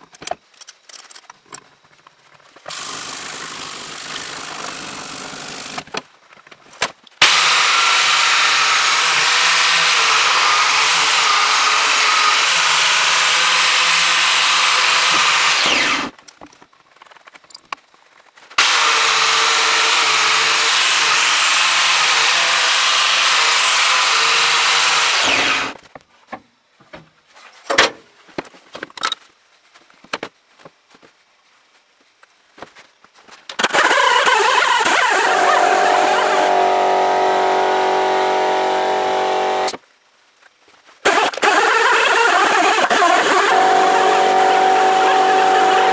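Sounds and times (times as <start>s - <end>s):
angle grinder grinding steel: 7.2s - 16.1s, 18.6s - 25.8s, 33.7s - 39.8s, 41.1s - 45.9s.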